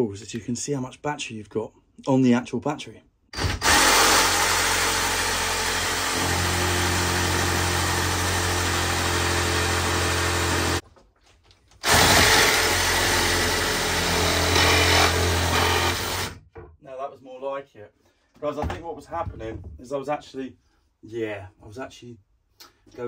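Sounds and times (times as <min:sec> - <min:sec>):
reciprocating saw cutting wood: 0:03.5 - 0:10.8.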